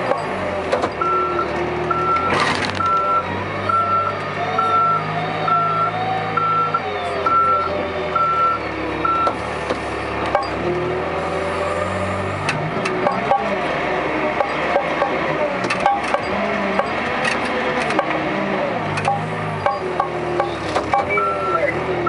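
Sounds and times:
diesel engine running: 0:00.0 - 0:22.0
reverse alarm beeping: 0:01.0 - 0:09.4, 0:19.1 - 0:21.8.

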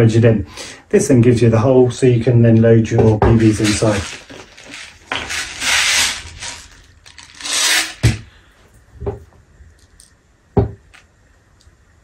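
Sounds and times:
steel bbs rattling: 0:03.4 - 0:08.1.

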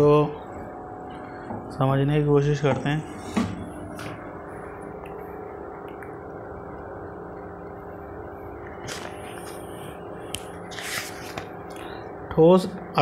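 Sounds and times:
room hum with faint tones: 0:00.0 - 0:13.0.

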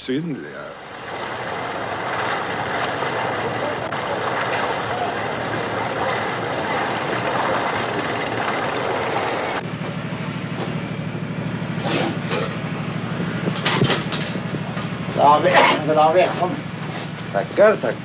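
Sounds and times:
ferry rushing noise: 0:00.0 - 0:18.0
low rhythmic chugging: 0:00.0 - 0:18.0.

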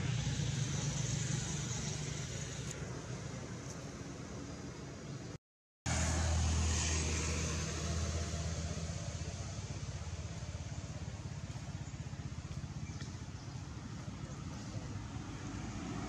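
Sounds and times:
constant hiss: 0:00.0 - 0:05.4
low engine-like hum: 0:00.0 - 0:16.0.

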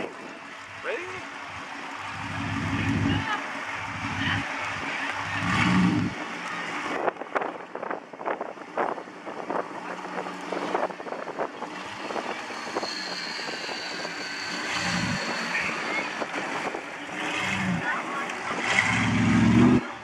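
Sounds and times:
off-road truck engines running: 0:00.0 - 0:20.0.

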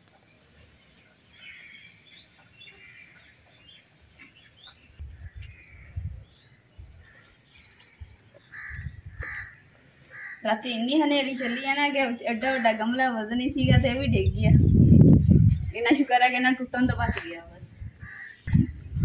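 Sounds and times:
birds chirping: 0:00.0 - 0:19.0
low rumbles: 0:13.4 - 0:15.8.

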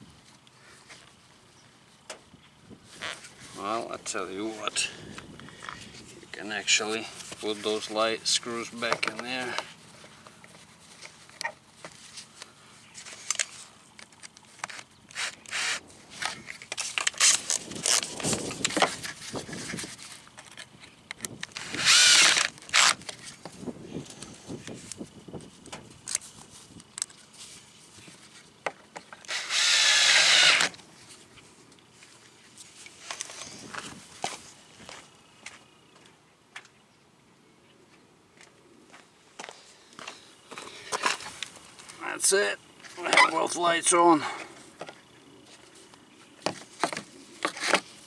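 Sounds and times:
cordless drill spinning: 0:14.6 - 0:15.9, 0:17.0 - 0:18.8, 0:21.4 - 0:23.3, 0:29.2 - 0:30.8.

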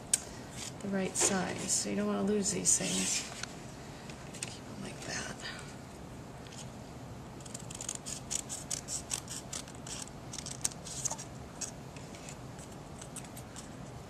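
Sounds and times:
scissors snipping paper: 0:07.4 - 0:11.7.

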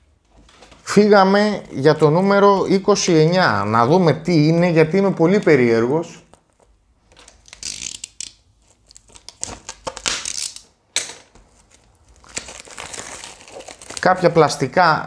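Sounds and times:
packaging tearing and crinkling: 0:07.3 - 0:10.8, 0:11.4 - 0:14.6.

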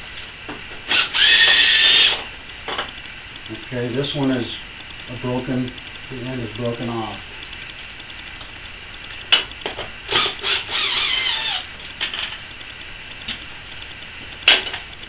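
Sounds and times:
tools and parts clicking and knocking: 0:09.3 - 0:12.4, 0:14.4 - 0:14.9.

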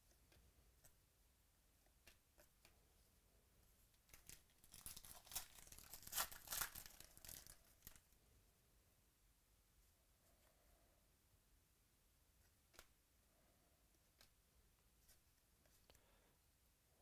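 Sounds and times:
foil wrapper tearing and crinkling: 0:04.1 - 0:08.0.

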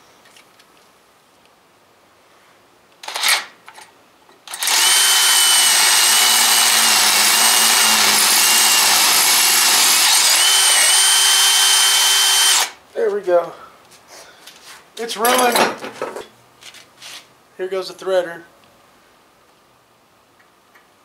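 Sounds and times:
power drill whining into metal: 0:04.5 - 0:12.8.

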